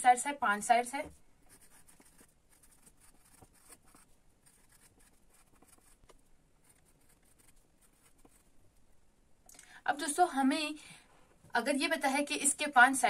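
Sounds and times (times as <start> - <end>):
pencil scratching on paper: 1.5 - 8.5.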